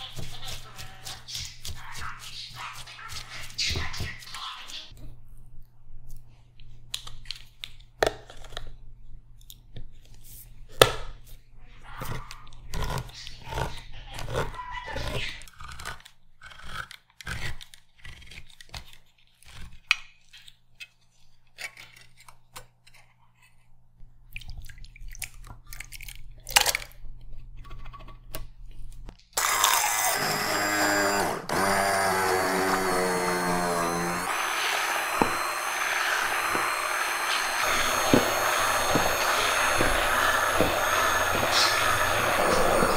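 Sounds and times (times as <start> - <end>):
vegetables being chopped: 33.5 - 42.9.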